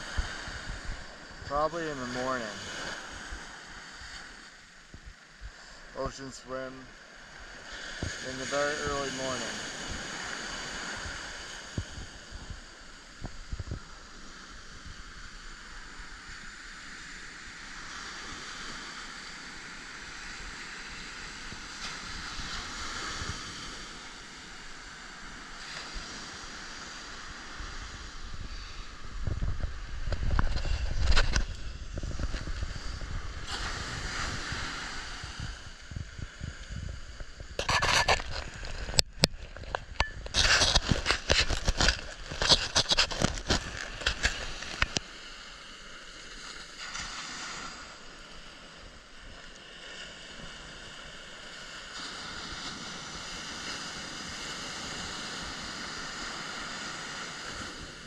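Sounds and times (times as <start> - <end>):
surf washing onto beach: 0.0 - 58.0
wind rumble on microphone: 0.0 - 58.0
loud scraping and crackling: 37.6 - 45.0.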